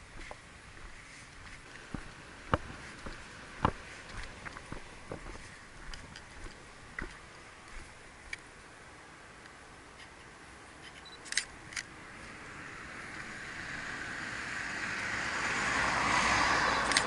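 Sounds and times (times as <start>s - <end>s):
approaching vehicle road noise: 0.0s - 8.9s, 11.3s - 17.0s
camera shutter clicks: 10.9s - 11.9s.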